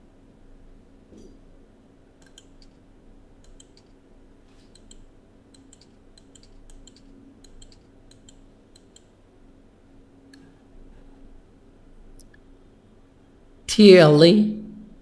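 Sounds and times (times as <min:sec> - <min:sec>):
steady low hum: 0:00.0 - 0:15.0
computer mouse clicking: 0:02.2 - 0:02.8, 0:03.4 - 0:04.0, 0:04.7 - 0:09.2.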